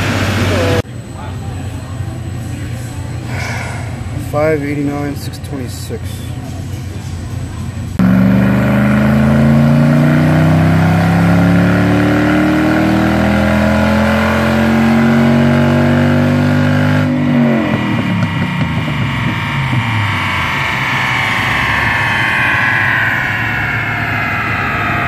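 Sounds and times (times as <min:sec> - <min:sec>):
car engine full-throttle pull: 0:00.0 - 0:00.8, 0:08.0 - 0:25.0.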